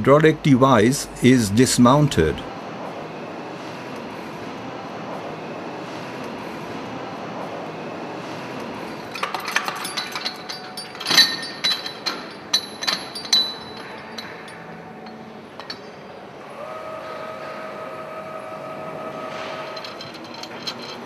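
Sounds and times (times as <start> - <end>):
steady tone: 0.0 - 2.5
workshop hum: 0.0 - 21.0
metal clinks and knocks: 9.1 - 16.1, 19.4 - 21.0.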